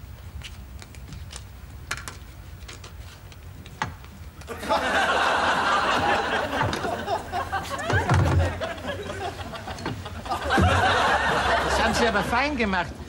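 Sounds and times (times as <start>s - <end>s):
crowd laughing: 4.5s - 12.7s.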